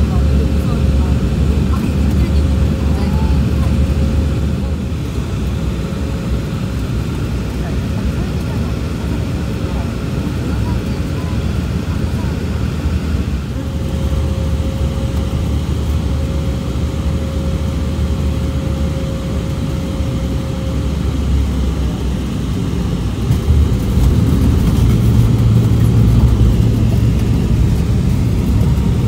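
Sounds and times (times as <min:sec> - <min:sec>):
engine and airflow rush: 0:00.0 - 0:29.0
deep rumble of rollout: 0:09.8 - 0:29.0.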